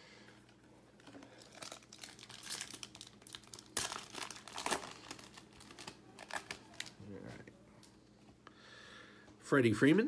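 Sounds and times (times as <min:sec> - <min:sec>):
foil wrapper crinkling and ripping: 0:01.0 - 0:07.1.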